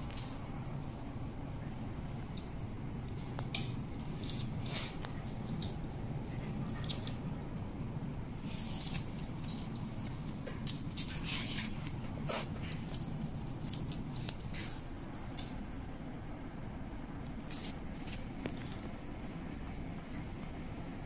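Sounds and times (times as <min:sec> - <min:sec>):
steady low rumble: 0:00.0 - 0:21.0
collar tags jingling: 0:12.5 - 0:14.7.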